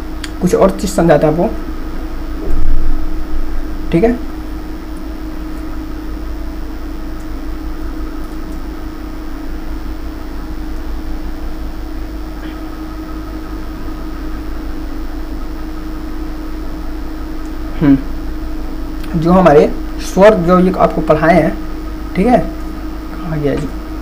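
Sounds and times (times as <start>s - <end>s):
mains hum with low rumble: 0.0s - 24.0s.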